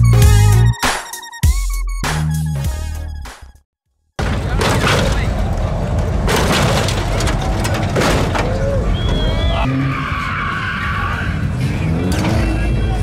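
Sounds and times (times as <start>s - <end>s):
car suspension banging: 4.2s - 9.8s
onlookers shouting: 7.3s - 11.6s.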